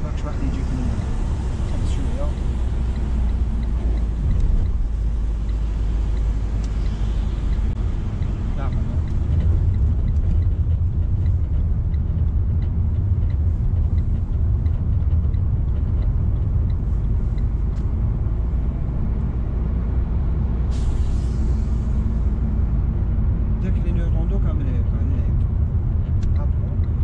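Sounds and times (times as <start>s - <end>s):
car interior road rumble: 0.0s - 27.0s
short hiss: 20.7s - 21.8s.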